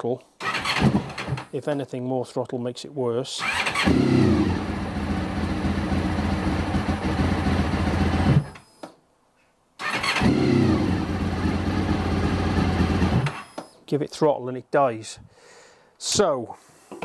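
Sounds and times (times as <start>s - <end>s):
motorcycle engine cold starting: 0.4s - 1.5s, 3.4s - 8.6s, 9.8s - 13.5s.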